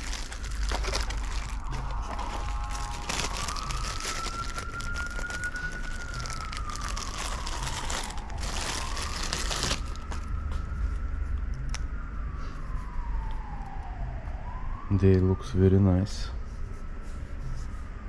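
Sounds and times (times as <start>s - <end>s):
plastic bag crinkling: 0.0s - 10.4s
siren wailing: 0.0s - 17.6s.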